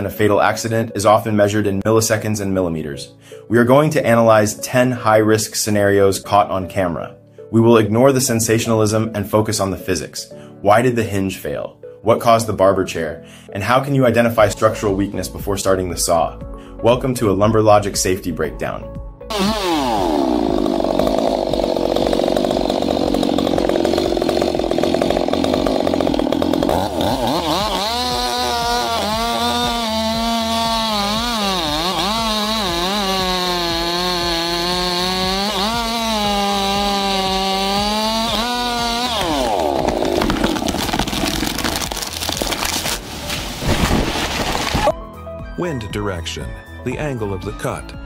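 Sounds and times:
chainsaw cutting wood: 0:19.3 - 0:45.0.

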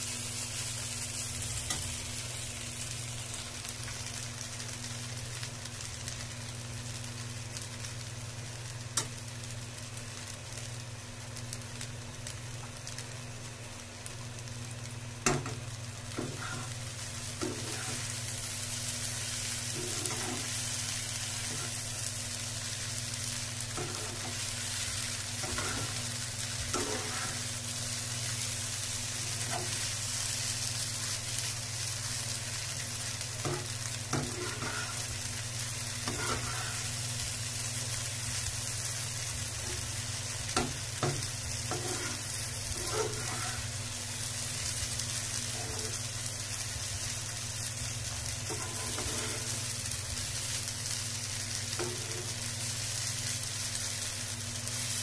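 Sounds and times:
steady low hum: 0:00.0 - 0:53.3
food sizzling in a frying pan: 0:00.0 - 0:55.0
metal spatula scraping a pan: 0:19.8 - 0:20.6, 0:25.4 - 0:26.0, 0:33.4 - 0:35.1, 0:36.0 - 0:36.9, 0:40.6 - 0:43.7, 0:45.5 - 0:46.0, 0:48.5 - 0:49.6.

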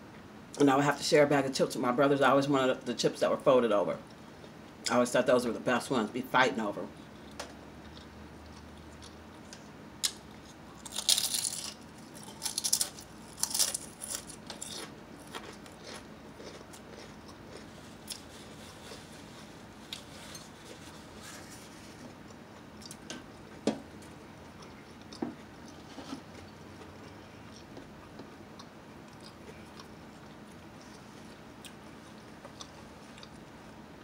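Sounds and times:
potato chips crunching: 0:07.8 - 0:21.4
chewing clicks: 0:26.9 - 0:31.0.

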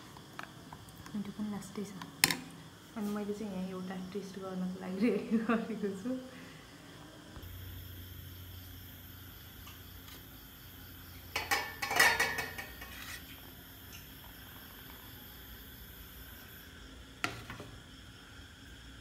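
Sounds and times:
steel kitchenware clattering: 0:11.3 - 0:13.2.

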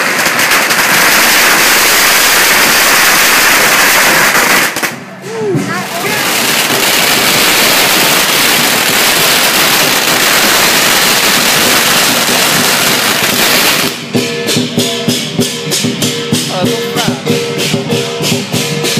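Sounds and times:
drum beating: 0:00.0 - 0:18.9
firecrackers crackling: 0:00.0 - 0:18.9
cymbals clashing: 0:04.7 - 0:18.9.

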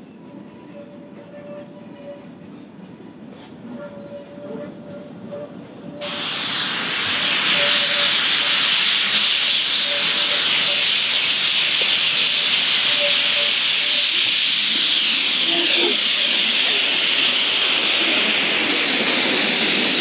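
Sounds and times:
steam locomotive blowing off steam: 0:05.2 - 0:20.0.

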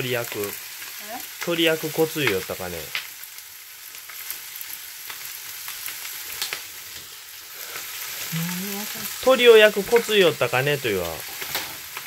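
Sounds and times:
chicken sizzling in a frying pan: 0:00.0 - 0:12.0
sharp crackles: 0:00.0 - 0:12.0.

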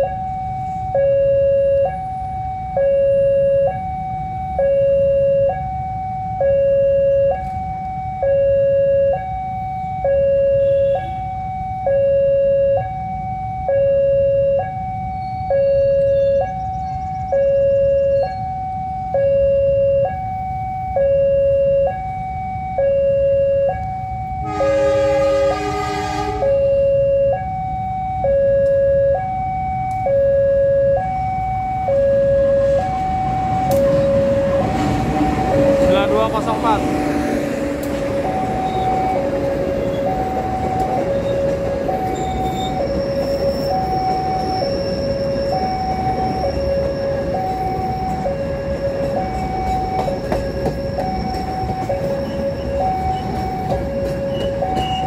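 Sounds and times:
two-tone crossing alarm: 0:00.0 - 0:55.0
train horn: 0:10.5 - 0:11.3, 0:24.4 - 0:26.9.

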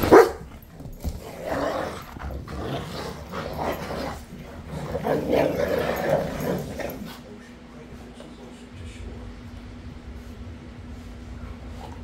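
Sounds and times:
dogs growling: 0:00.0 - 0:07.4.

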